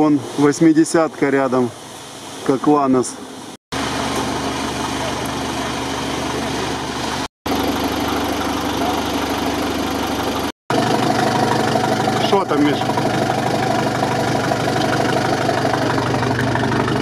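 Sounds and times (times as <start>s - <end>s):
truck engine idling: 3.8s - 17.0s.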